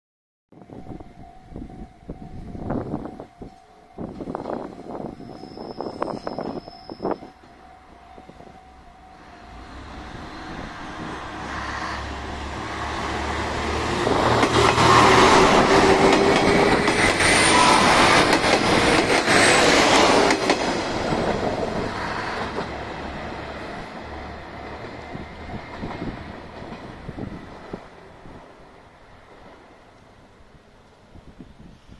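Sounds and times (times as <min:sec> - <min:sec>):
diesel railcar engine drone: 0:00.6 - 0:31.9
train wheels clacking on rail joints: 0:13.6 - 0:22.9.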